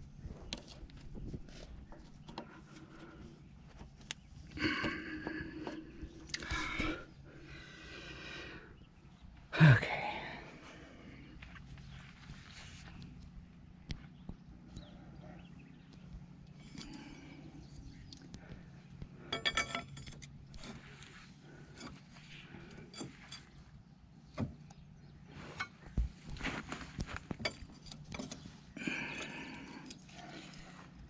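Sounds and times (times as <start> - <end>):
ringing metallic jangle: 19.3 - 20.2
metal tools clinking and tapping: 19.3 - 20.8, 22.7 - 23.6, 27.3 - 28.5.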